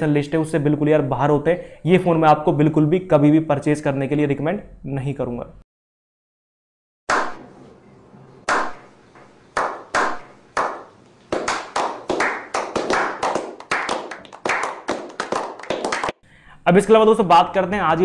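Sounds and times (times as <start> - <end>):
people clapping: 9.6 - 16.2.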